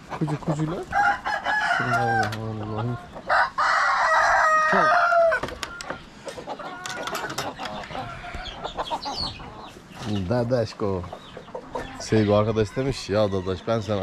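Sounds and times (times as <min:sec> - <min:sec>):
hens clucking: 0:00.0 - 0:14.0
rooster crowing: 0:00.9 - 0:02.4, 0:03.3 - 0:05.9.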